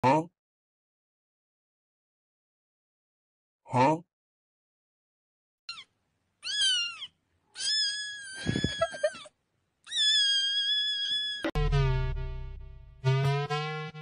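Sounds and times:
kitten meowing: 0:05.7 - 0:09.2, 0:09.9 - 0:11.5.

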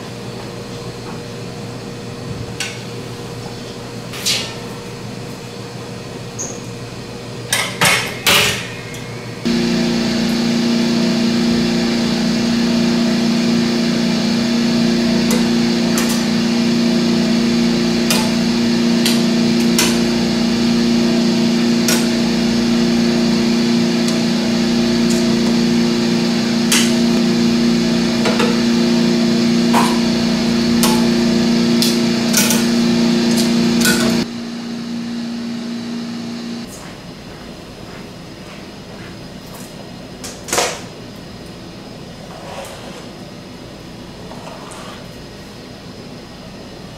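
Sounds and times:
electric machine hum: 0:08.2 - 0:36.8.

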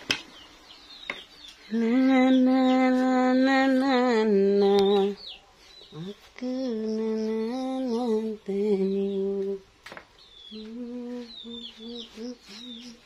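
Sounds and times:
small birds chirping: 0:00.0 - 0:13.0
woman humming: 0:05.9 - 0:09.6, 0:10.5 - 0:13.0.

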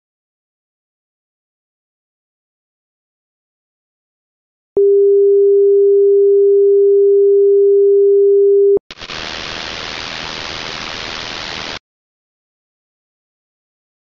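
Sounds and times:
white noise hiss: 0:08.9 - 0:11.8.

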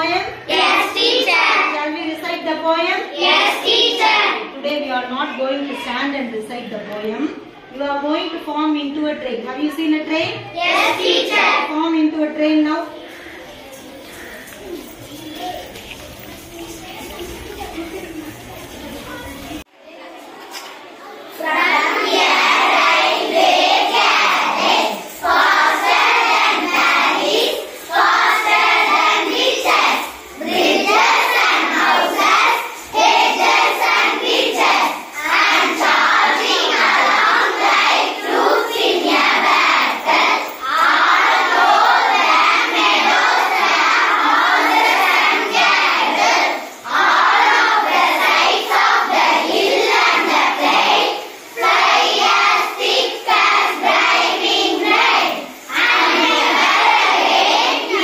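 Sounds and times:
girls chanting in unison: 0:00.4 - 0:01.8, 0:03.1 - 0:04.5, 0:10.6 - 0:11.7, 0:21.4 - 0:58.0.

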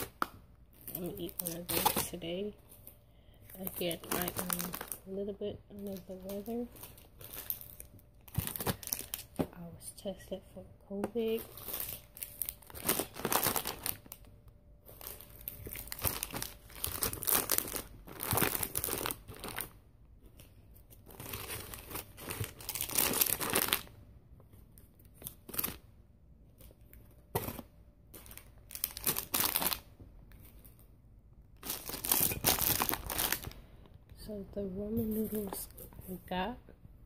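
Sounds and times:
plastic packets crinkling: 0:00.0 - 0:09.4, 0:11.2 - 0:24.0, 0:27.3 - 0:30.9, 0:31.6 - 0:33.9.

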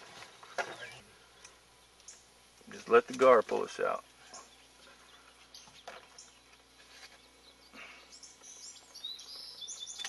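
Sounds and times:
faint bird chirps: 0:00.6 - 0:02.3, 0:04.2 - 0:10.0.

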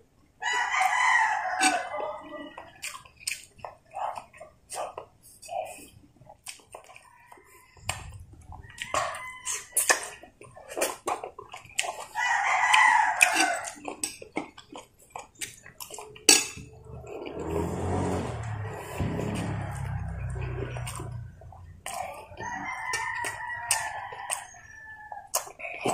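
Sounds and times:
rooster crowing: 0:00.4 - 0:02.7, 0:07.1 - 0:10.2, 0:12.2 - 0:13.8, 0:17.4 - 0:25.3
chewing and smacking mouth sounds: 0:00.5 - 0:25.9.

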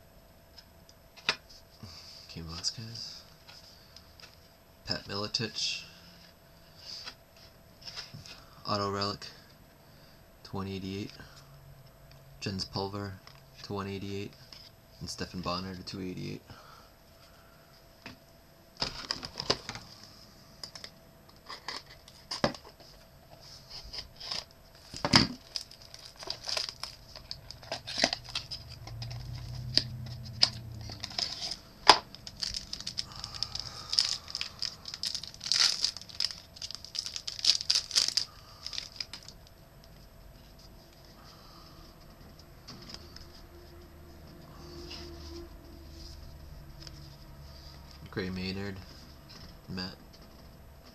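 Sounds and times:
wrapper tearing and crinkling: 0:24.2 - 0:29.8, 0:30.4 - 0:39.5.

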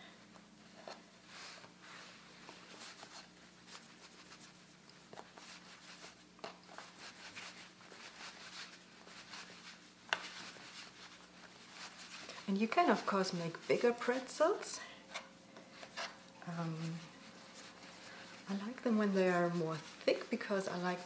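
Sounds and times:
steady low hum: 0:00.0 - 0:21.0
hands shaping dough on wood: 0:00.8 - 0:14.4.

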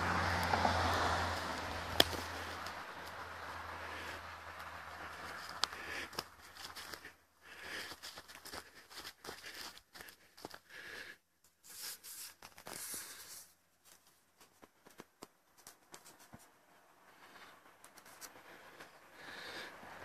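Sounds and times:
twigs snapping underfoot: 0:01.4 - 0:03.2, 0:04.6 - 0:07.0
leaves rustling underfoot: 0:11.6 - 0:16.5.

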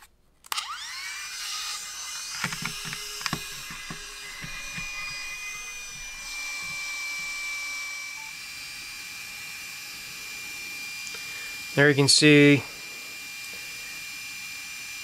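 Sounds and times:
small fan whining: 0:00.0 - 0:15.0
plastic clicks and knocks: 0:02.4 - 0:07.4.

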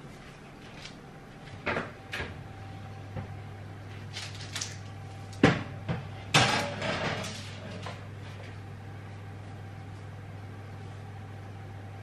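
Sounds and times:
baking tray clattering on oven rack: 0:05.4 - 0:08.0.

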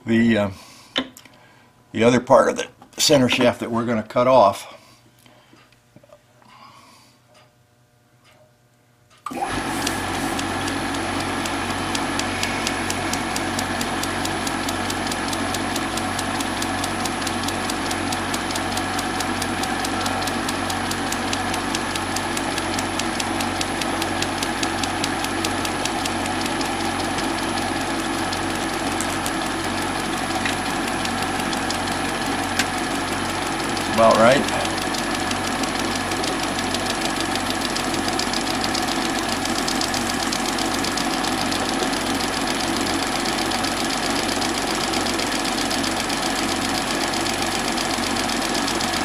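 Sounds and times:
bench lathe running: 0:09.3 - 0:49.0
fast even ticking: 0:10.6 - 0:49.0.

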